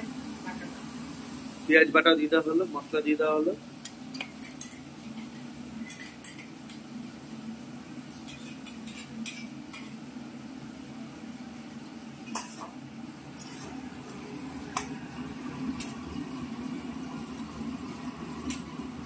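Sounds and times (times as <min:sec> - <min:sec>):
food frying: 0:00.0 - 0:19.0
metal spoon clinking and scraping: 0:08.3 - 0:10.0
spatula scraping in wok: 0:13.4 - 0:13.8.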